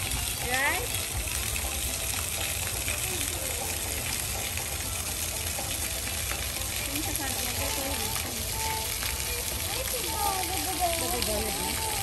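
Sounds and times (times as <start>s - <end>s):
fountain water pouring into basin: 0.0s - 12.0s
faint voices of people: 2.4s - 5.4s, 6.6s - 12.0s.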